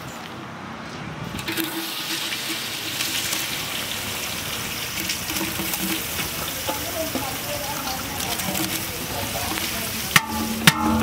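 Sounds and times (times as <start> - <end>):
onions sizzling in hot oil: 1.4 - 11.0.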